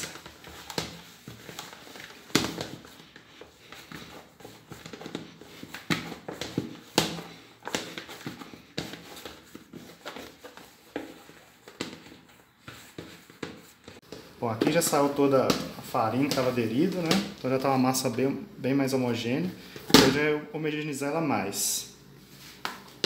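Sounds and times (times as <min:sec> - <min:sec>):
hands handling dough: 0:00.0 - 0:18.2.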